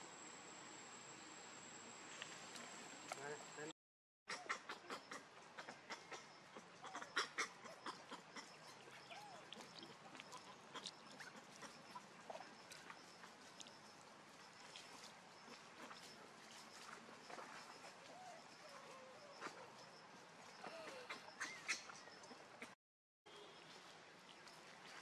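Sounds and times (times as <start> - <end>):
faint monkey calls: 4.3 - 13.8, 14.6 - 23.6.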